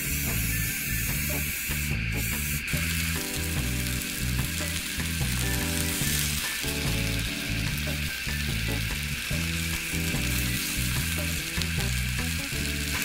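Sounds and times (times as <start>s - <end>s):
background music: 0.0s - 13.0s
gas stove burning: 0.0s - 13.0s
sausages sizzling in frying pan: 0.0s - 13.0s.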